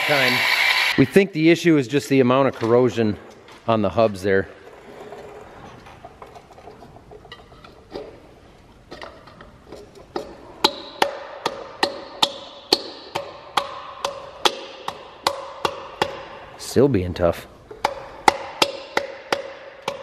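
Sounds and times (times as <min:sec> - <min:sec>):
sharp metallic taps: 0:10.6 - 0:16.3, 0:17.7 - 0:20.0.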